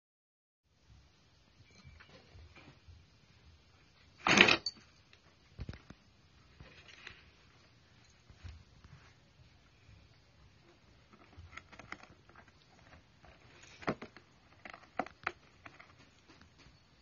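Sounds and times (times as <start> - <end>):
cats scratching cardboard: 10.7 - 16.6.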